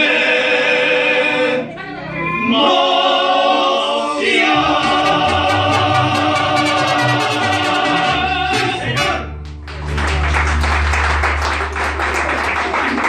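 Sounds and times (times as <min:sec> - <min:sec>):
mariachi ensemble with voices: 0:00.0 - 0:11.4
audience clapping and applause: 0:09.3 - 0:13.0.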